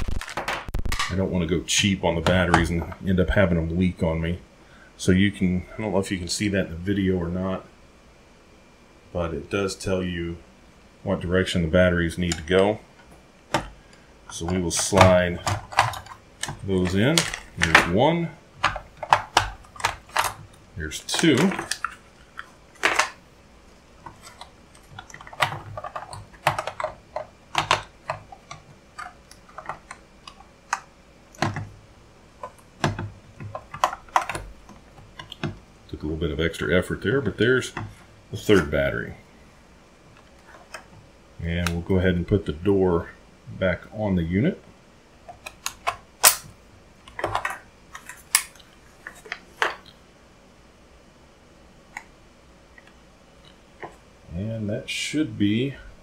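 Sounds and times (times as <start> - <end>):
plastic clicks and knocks: 12.3 - 18.0, 18.6 - 23.2, 24.0 - 31.8, 32.4 - 35.6, 47.1 - 50.0.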